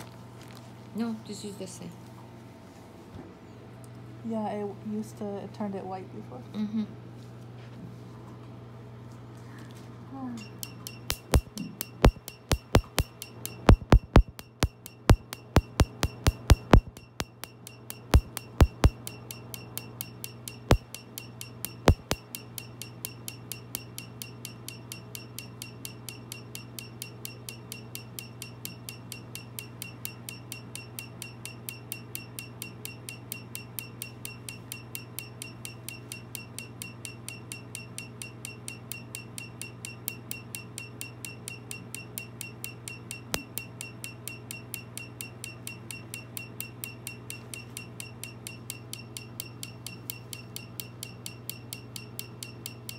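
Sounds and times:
steady low hum: 10.3 - 38.8
laser pulses snapping: 11.1 - 17.5, 18.2 - 19.0, 21.9 - 22.2.

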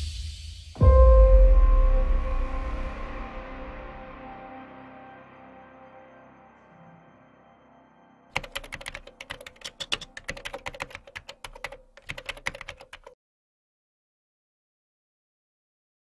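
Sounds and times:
keyboard typing: 8.4 - 13.2.

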